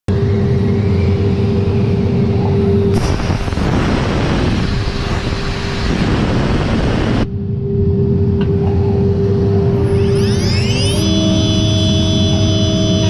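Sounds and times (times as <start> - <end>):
loud rushing noise: 0.1 - 8.3
low machine rumble: 0.1 - 13.0
machine whine: 0.1 - 13.0.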